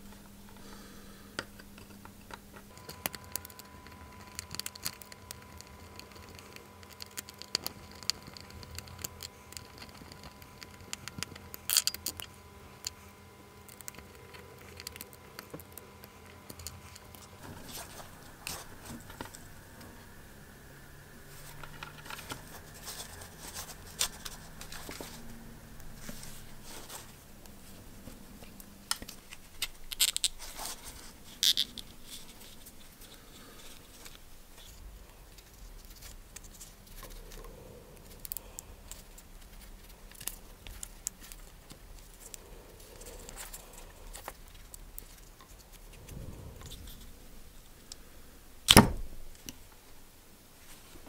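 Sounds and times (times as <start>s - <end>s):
rubber sleeve clicking and creaking: 1.4s - 13.0s, 27.4s - 47.1s, 48.6s - 49.6s.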